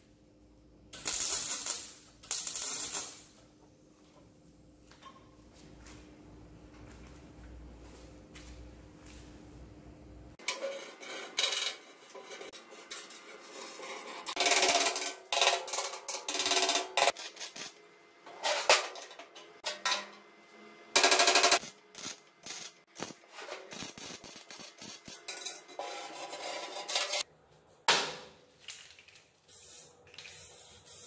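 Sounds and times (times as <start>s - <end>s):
welder arc crackling: 1.0s - 3.3s, 21.0s - 25.3s.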